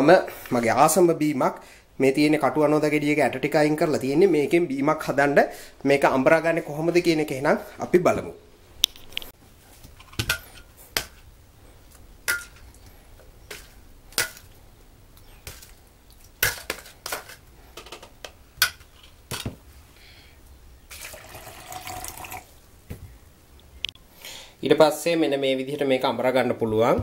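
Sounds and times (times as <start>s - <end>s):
water pouring into beaker: 20.9s - 22.5s.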